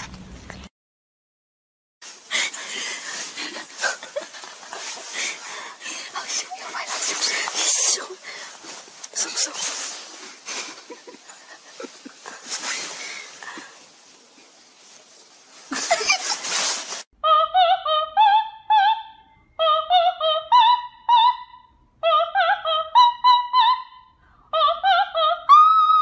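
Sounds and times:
operatic soprano singing: 17.2s - 26.0s.

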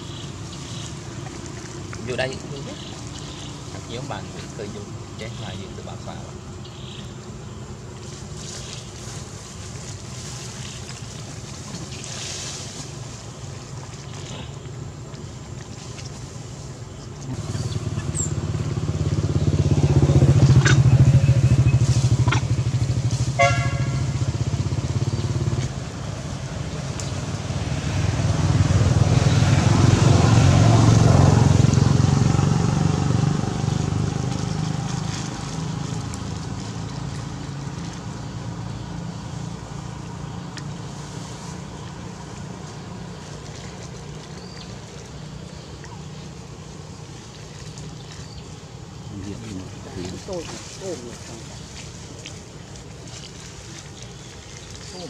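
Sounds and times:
passing vehicle engines: 17.2s - 55.0s
horn toot: 23.3s - 24.2s.

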